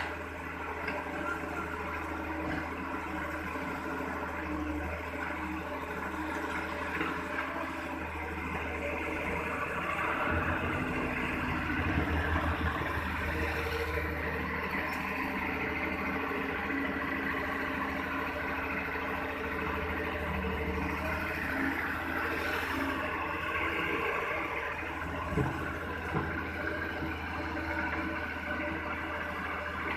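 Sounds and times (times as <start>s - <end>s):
excavator diesel engine running: 0.0s - 29.9s.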